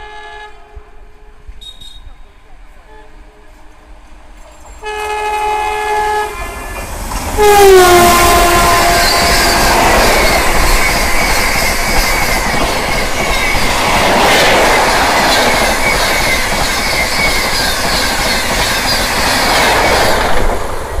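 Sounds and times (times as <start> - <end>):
train wheels rumbling and clattering: 3.4 - 21.0
high squealing tones: 8.8 - 13.7.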